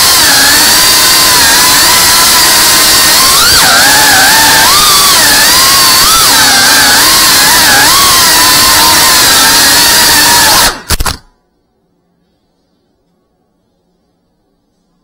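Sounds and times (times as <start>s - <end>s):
small drone motors whining: 0.0s - 10.8s.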